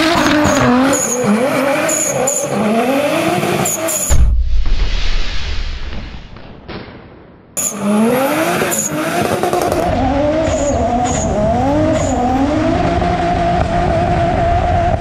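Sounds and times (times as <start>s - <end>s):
car engine revving: 0.0s - 4.2s, 7.6s - 15.0s.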